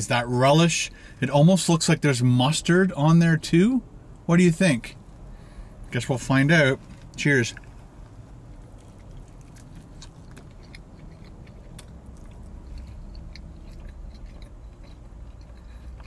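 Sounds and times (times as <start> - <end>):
low steady hum: 0.0 - 16.0
man chewing crunchy food: 6.8 - 16.0.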